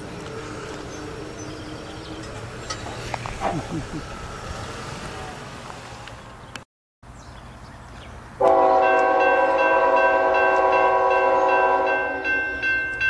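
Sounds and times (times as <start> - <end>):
crossing gate mechanism humming: 0.0 - 6.6.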